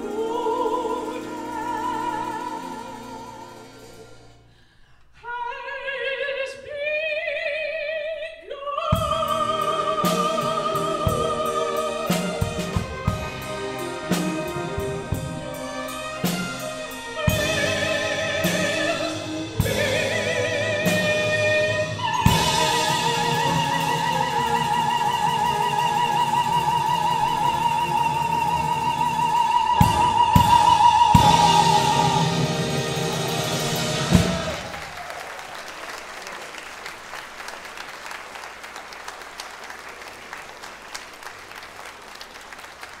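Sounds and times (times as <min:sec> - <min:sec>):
orchestra playing: 0:00.0 - 0:04.6, 0:08.9 - 0:35.3
audience applause: 0:33.3 - 0:43.0.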